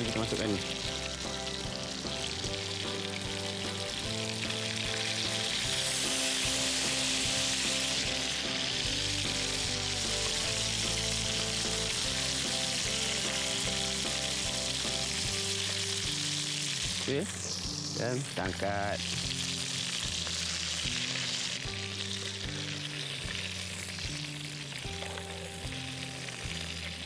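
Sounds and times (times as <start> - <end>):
food sizzling in a wok: 0.0 - 27.0.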